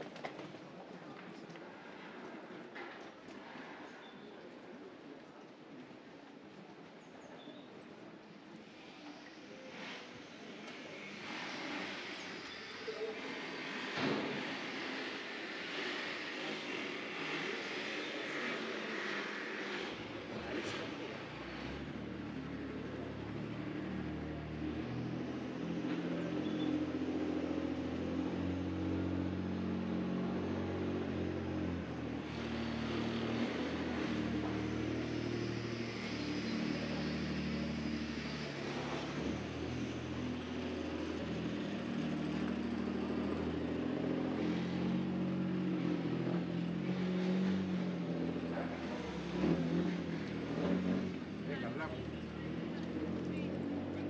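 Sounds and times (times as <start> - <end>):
vehicle engine running: 15.7 - 54.0.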